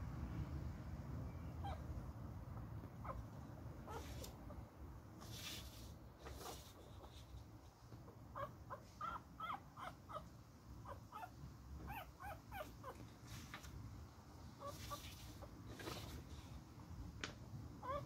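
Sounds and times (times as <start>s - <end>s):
puppy whimpering: 8.3s - 13.0s.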